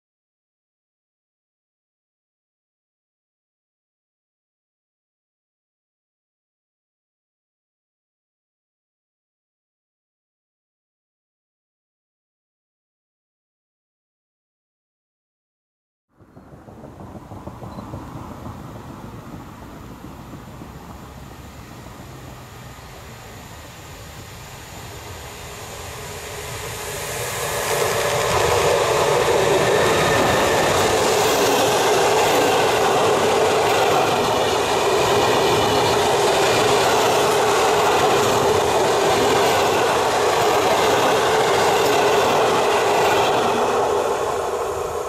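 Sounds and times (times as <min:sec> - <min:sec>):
train wheels rushing on rail: 0:16.2 - 0:45.0.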